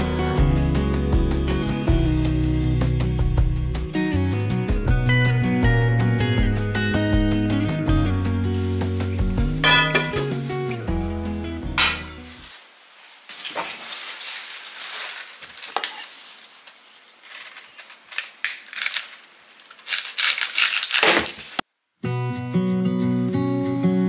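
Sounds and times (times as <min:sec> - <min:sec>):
acoustic guitar music: 0:00.0 - 0:12.4, 0:22.0 - 0:24.0.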